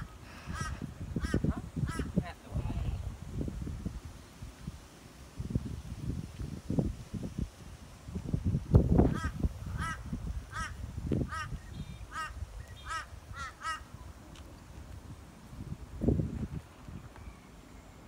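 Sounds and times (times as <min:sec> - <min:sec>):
wind buffeting microphone: 0:00.0 - 0:17.4
crow cawing: 0:00.5 - 0:02.1, 0:09.1 - 0:11.5, 0:12.1 - 0:13.9.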